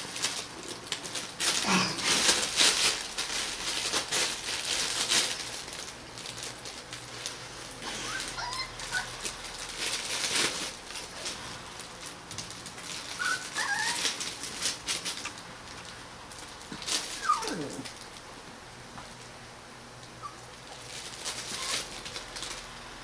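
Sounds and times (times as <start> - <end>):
puppies scratching on fabric: 0.0 - 18.2, 20.3 - 22.6
puppies squeaking and whimpering: 7.8 - 9.4, 13.0 - 14.2, 17.1 - 17.9, 20.2 - 21.9.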